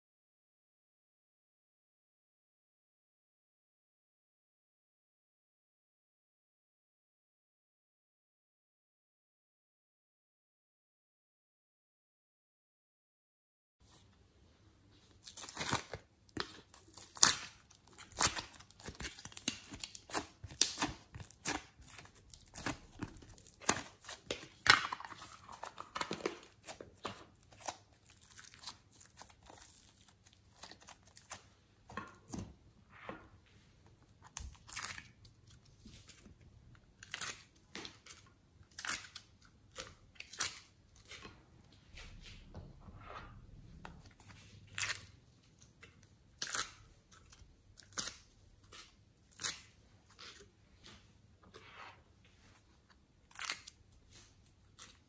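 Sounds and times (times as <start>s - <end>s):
plastic packaging crinkling: 15.2s - 31.5s.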